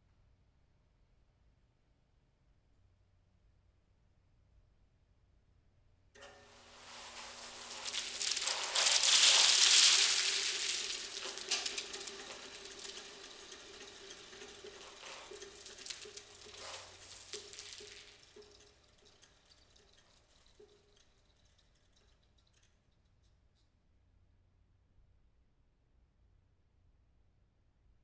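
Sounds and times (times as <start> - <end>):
corn kernels scattering: 6.2 - 21.0.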